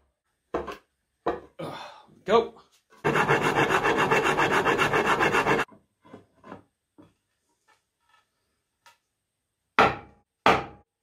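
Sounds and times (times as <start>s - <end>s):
rasp cutting wood: 3.0s - 5.7s.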